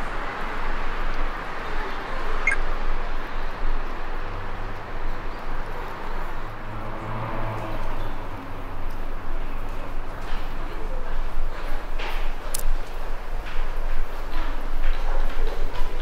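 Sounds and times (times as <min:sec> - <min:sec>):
distant traffic: 0:00.0 - 0:14.5
short high chirp: 0:02.4 - 0:02.6.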